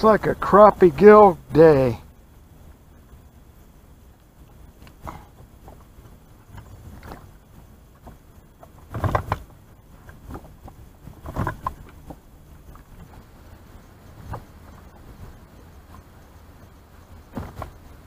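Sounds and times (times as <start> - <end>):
low steady rumble: 0.0 - 18.0
knocks and thumps in a boat: 4.4 - 18.0.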